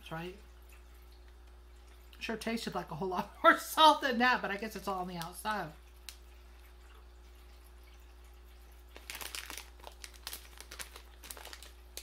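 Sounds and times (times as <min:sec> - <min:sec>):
plastic packet crinkling: 0:08.9 - 0:12.0.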